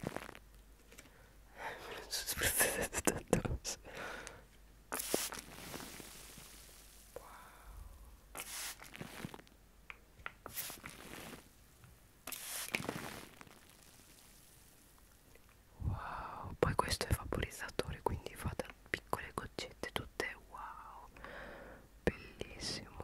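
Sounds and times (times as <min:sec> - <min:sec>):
spray bottle spritzing: 0:04.9 - 0:06.8, 0:08.3 - 0:09.2, 0:10.4 - 0:11.2, 0:12.2 - 0:14.5
plastic film crinkling: 0:05.0 - 0:07.2, 0:08.4 - 0:09.5, 0:10.5 - 0:11.6, 0:12.3 - 0:15.3.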